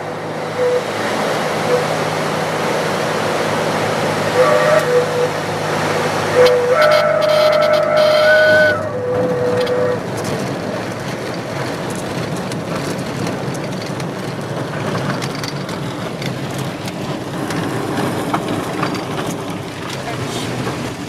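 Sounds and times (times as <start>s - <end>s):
aircraft cabin engine noise: 0.0s - 21.0s.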